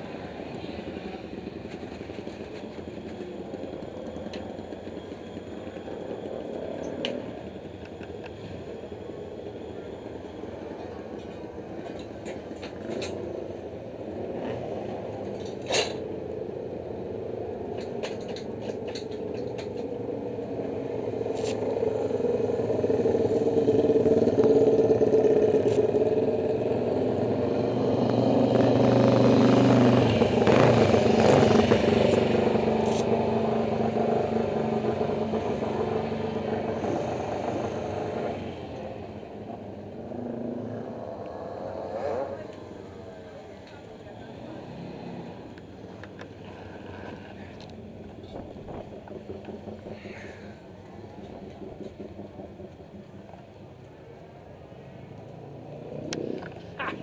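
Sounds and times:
motorcycle engine running: 0:19.9 - 0:54.5.

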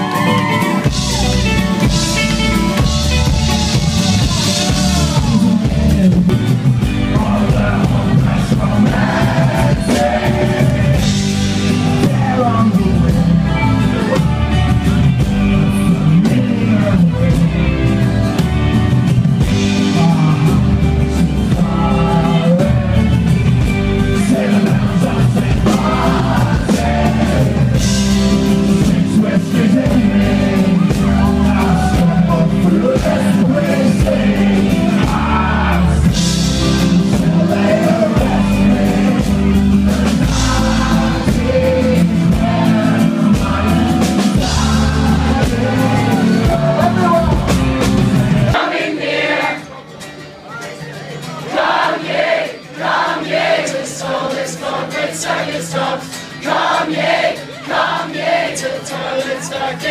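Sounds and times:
man singing: 0:00.0 - 0:18.4, 0:19.4 - 0:48.6
live rock band playing: 0:00.0 - 0:59.9.

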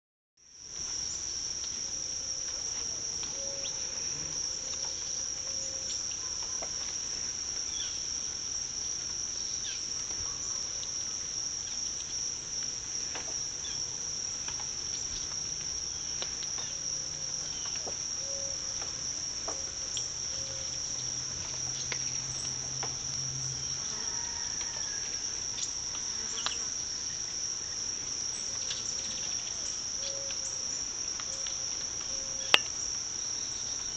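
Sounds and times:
crickets shrilling: 0:00.4 - 0:33.9
faint ticks: 0:25.5 - 0:26.6.

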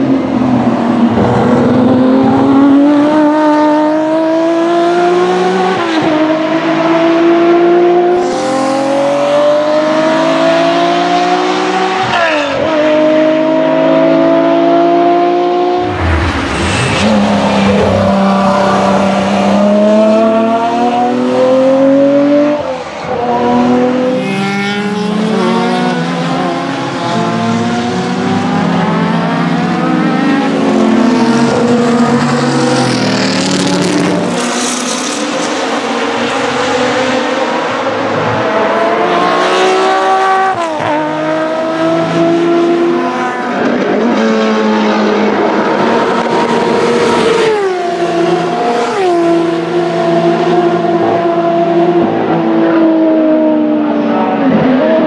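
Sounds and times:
racing engine accelerating: 0:00.5 - 0:22.6.

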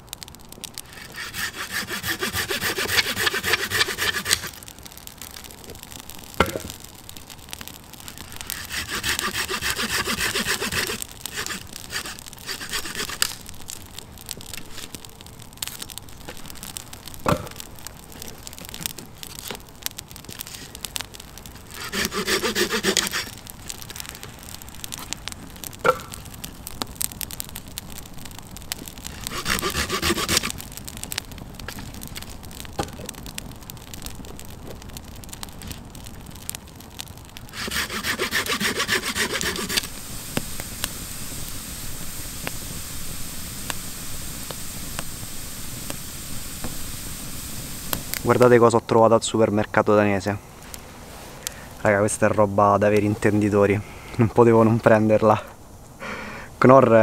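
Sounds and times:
hand saw cutting wood: 0:00.9 - 0:04.6, 0:08.5 - 0:13.4, 0:21.8 - 0:23.3, 0:29.2 - 0:30.6, 0:37.5 - 0:39.9.

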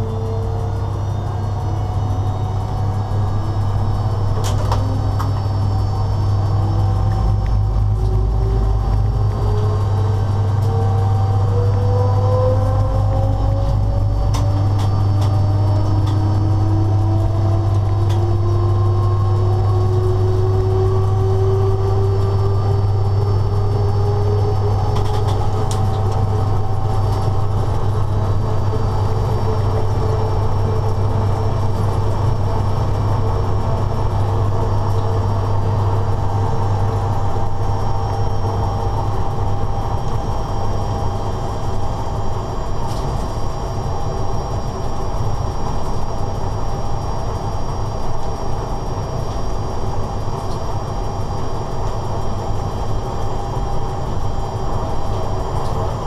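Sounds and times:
rising whining tones: 0:00.0 - 0:42.8
locomotive low hum: 0:00.0 - 0:56.0.

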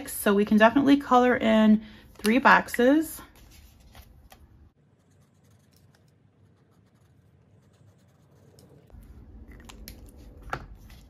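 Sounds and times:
marker scratching on paper: 0:04.8 - 0:08.9.

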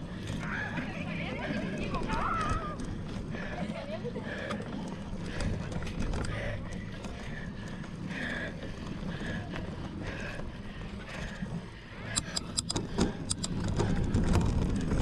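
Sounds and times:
bike tyre rumble: 0:00.0 - 0:15.0
rattling clicks: 0:12.1 - 0:15.0.

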